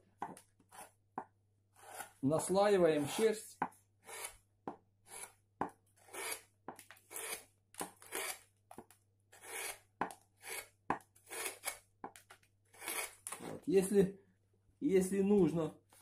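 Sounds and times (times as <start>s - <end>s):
gouge scraping wood: 0.6s - 1.0s, 1.7s - 2.2s, 4.0s - 4.4s, 5.0s - 5.4s, 6.0s - 6.5s, 7.1s - 7.4s, 9.3s - 11.8s, 12.7s - 13.6s.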